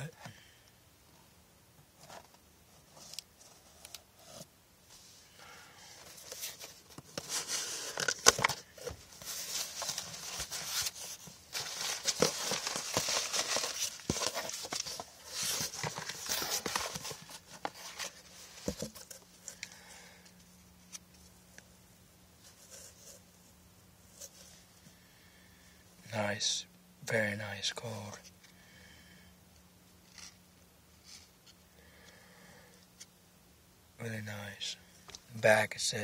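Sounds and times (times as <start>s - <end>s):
paper rustling and tearing: 6.1s - 19.1s.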